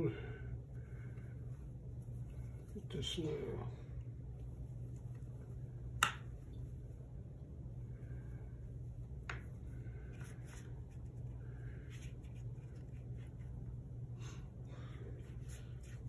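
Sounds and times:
low hum: 0:00.0 - 0:16.0
brush strokes on paper: 0:00.8 - 0:03.6, 0:07.8 - 0:13.7, 0:14.9 - 0:16.0.

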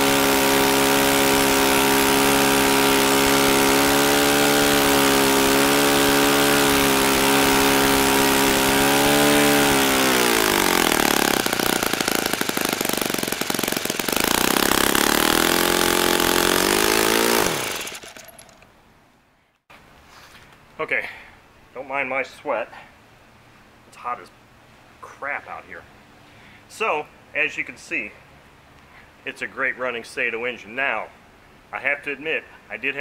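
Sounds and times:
model plane engine running: 0:00.0 - 0:18.5.

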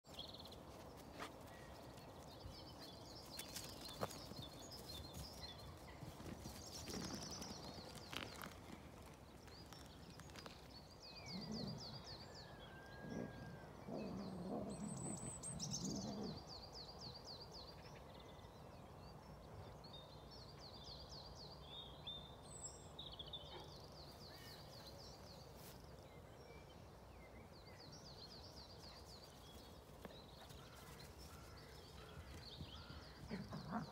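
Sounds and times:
songbirds trilling: 0:26.8 - 0:33.9.

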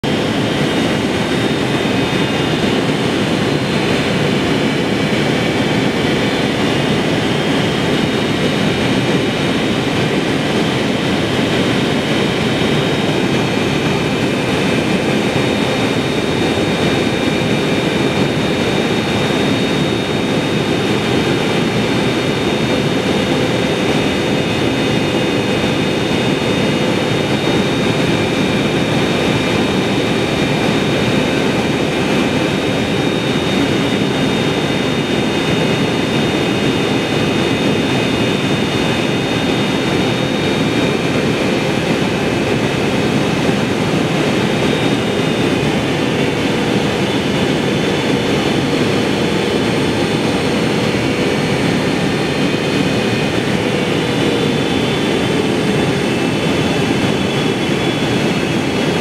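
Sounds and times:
jet engines droning: 0:00.0 - 0:59.0.

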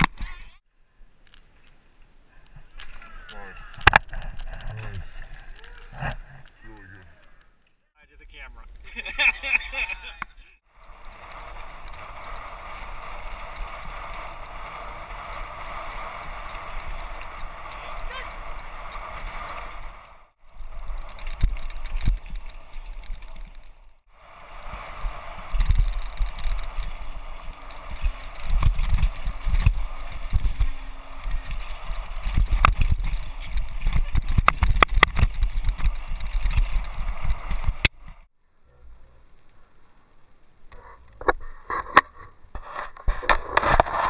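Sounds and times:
bike rattling over bumps: 0:10.7 - 0:38.3
wind rushing on microphone: 0:10.8 - 0:38.3.

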